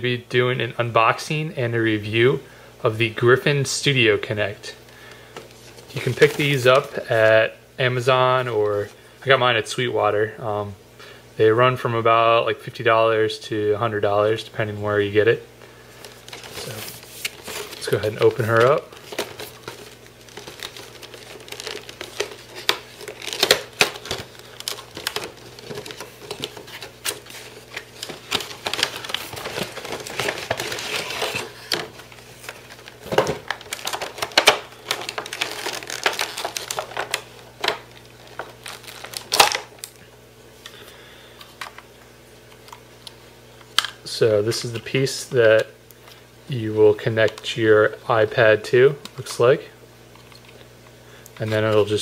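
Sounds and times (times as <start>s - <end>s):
plastic packaging crinkling: 5.0s - 7.4s, 15.9s - 40.0s.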